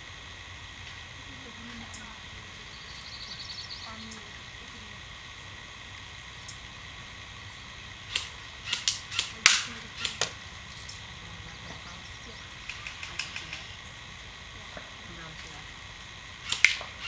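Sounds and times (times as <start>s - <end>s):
airsoft guns firing: 8.1s - 10.5s, 16.4s - 17.0s.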